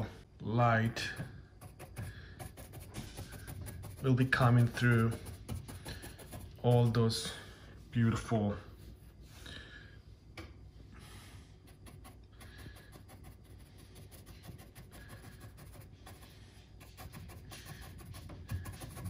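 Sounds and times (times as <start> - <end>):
paintbrush tapping and scratching: 1.0 - 7.2, 11.6 - 19.0.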